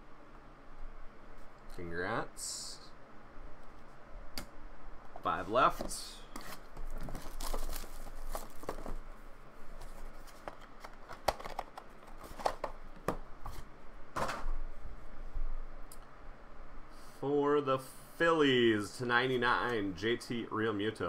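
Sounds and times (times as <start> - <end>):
packaging rustling and crinkling: 5.7 - 12.8.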